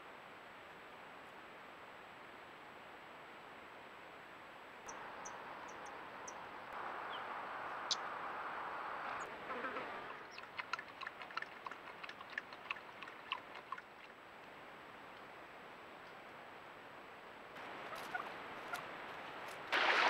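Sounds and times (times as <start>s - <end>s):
coyote lapping water: 9.2s - 14.3s, 19.7s - 20.0s.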